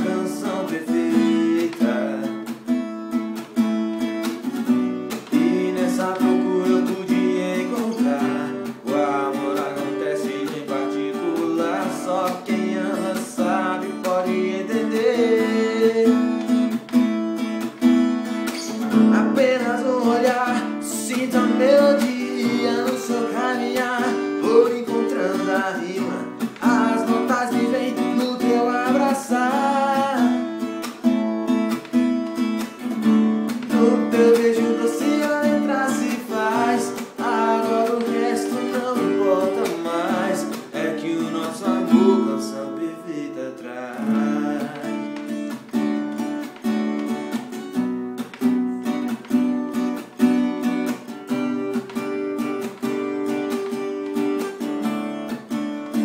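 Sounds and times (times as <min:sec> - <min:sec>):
man singing: 0:00.0 - 0:02.7, 0:05.1 - 0:16.9, 0:18.5 - 0:30.9, 0:32.9 - 0:46.5
acoustic guitar strumming: 0:00.0 - 0:56.0.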